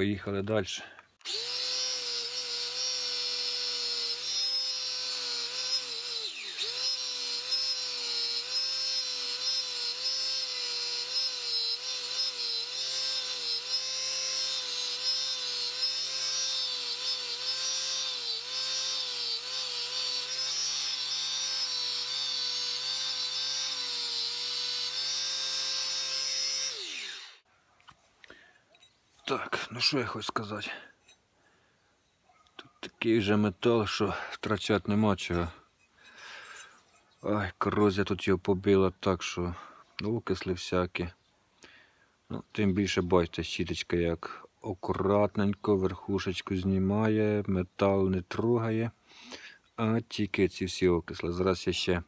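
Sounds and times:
grinder winding down: 1.2s - 27.4s
angle grinder wire brush whining: 1.2s - 27.5s.

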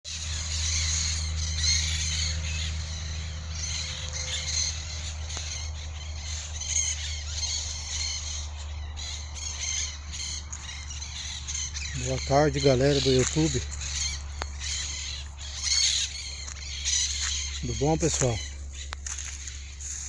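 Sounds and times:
low steady rumble: 0.1s - 20.0s
parakeets squawking and chattering: 0.1s - 20.0s.

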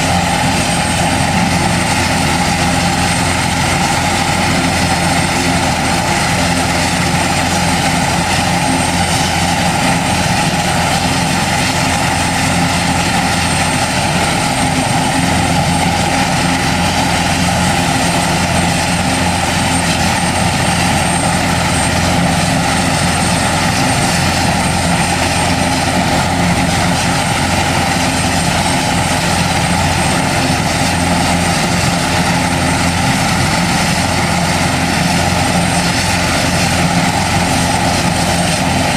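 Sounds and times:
helicopter turbine whine: 0.0s - 38.9s.

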